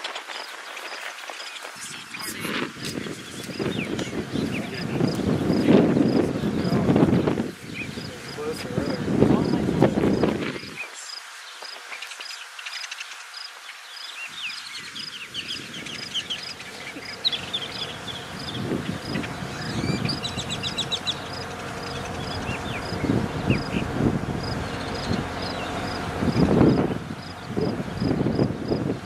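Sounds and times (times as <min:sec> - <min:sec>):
wind rumble on microphone: 0:00.0 - 0:11.0, 0:14.3 - 0:29.0
birds singing and chirping: 0:00.1 - 0:29.0
bird trill: 0:14.0 - 0:28.4.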